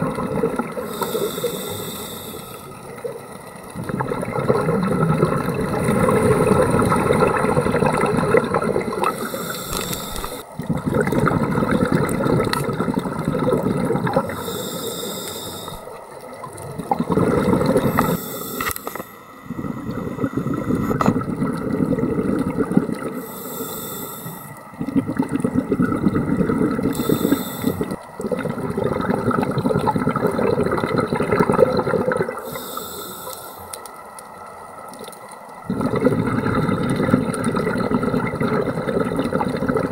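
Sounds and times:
exhaled bubbles rushing: 0:00.0 - 0:01.0, 0:02.8 - 0:14.4, 0:15.6 - 0:23.2, 0:24.5 - 0:32.5, 0:35.6 - 0:39.9
regulator inhale hiss: 0:00.8 - 0:02.9, 0:09.0 - 0:10.5, 0:14.2 - 0:16.0, 0:17.6 - 0:21.0, 0:23.1 - 0:24.7, 0:26.9 - 0:28.0, 0:32.4 - 0:33.9.

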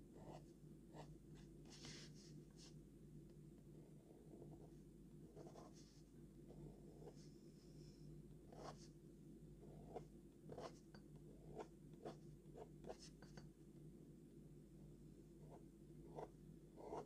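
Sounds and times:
low steady hum: 0:00.0 - 0:17.0
pen nib scratching on paper: 0:09.6 - 0:13.4, 0:15.5 - 0:17.0.

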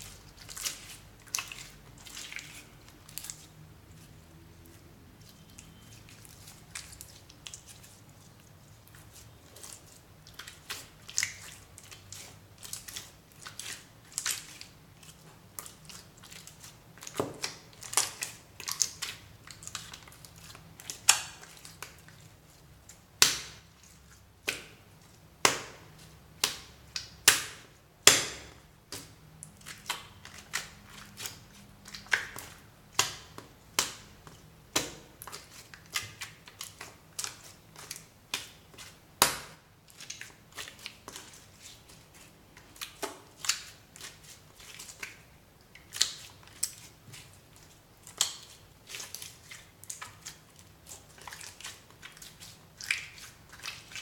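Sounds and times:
slime squished by hand: 0:00.0 - 0:54.0.

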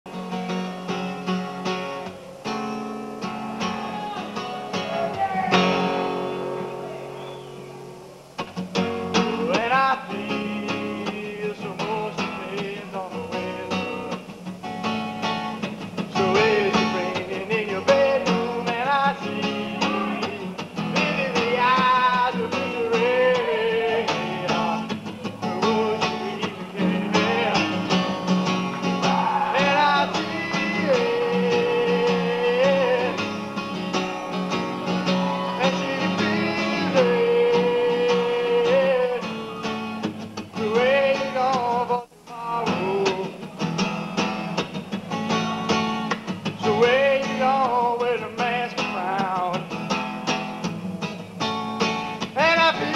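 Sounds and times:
strummed acoustic guitar: 0:00.1 - 0:52.9
person singing: 0:09.2 - 0:14.1, 0:16.0 - 0:33.6, 0:34.8 - 0:43.7, 0:52.3 - 0:52.9.

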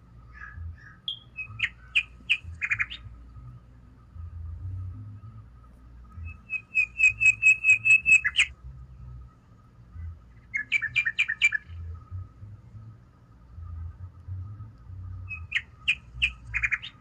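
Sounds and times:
gull calling: 0:00.3 - 0:03.2, 0:06.2 - 0:08.5, 0:15.3 - 0:17.0.

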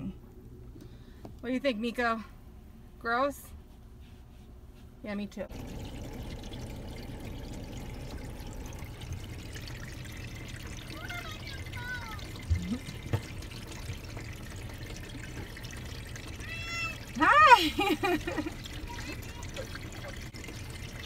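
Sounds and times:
water pouring over car windows: 0:05.5 - 0:21.0.

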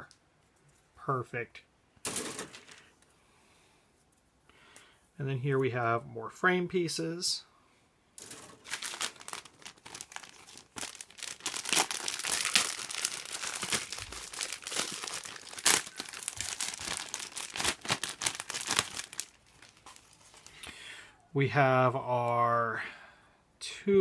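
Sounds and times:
plastic bags crinkling: 0:08.2 - 0:20.7.

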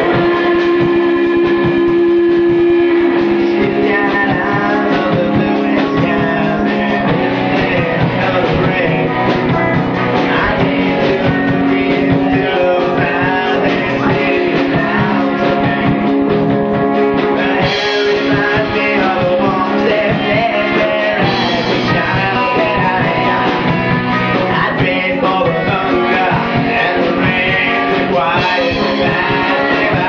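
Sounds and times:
drums: 0:00.0 - 0:30.0
electric guitars: 0:00.0 - 0:30.0
man singing: 0:00.0 - 0:30.0.

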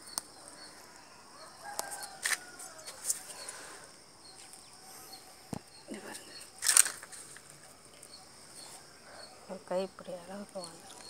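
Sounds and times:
leaves clicking and rustling: 0:00.0 - 0:03.7, 0:05.4 - 0:08.9, 0:10.3 - 0:11.0
rooster crowing faintly: 0:00.5 - 0:03.9.

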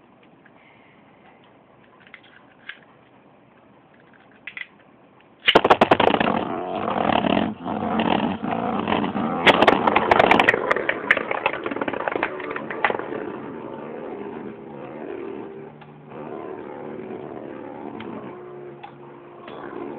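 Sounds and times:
spinning tops launched: 0:05.4 - 0:19.0
spinning tops clattering: 0:08.8 - 0:14.3.

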